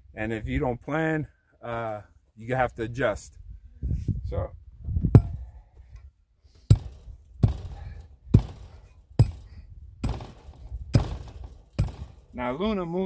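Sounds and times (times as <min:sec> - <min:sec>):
hand tamper thudding on dirt: 0:05.0 - 0:05.4, 0:06.7 - 0:12.4.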